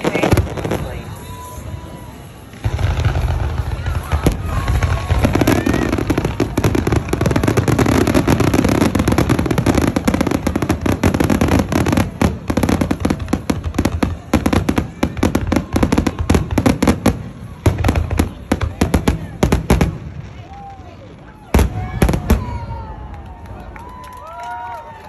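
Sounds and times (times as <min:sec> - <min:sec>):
fireworks bangs and crackling: 0:00.0 - 0:24.8.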